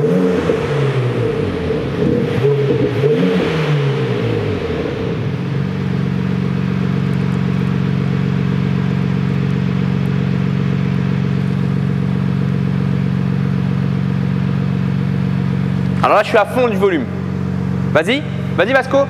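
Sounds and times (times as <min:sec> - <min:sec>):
synthesized engine idle tone: 0:04.3 - 0:19.0.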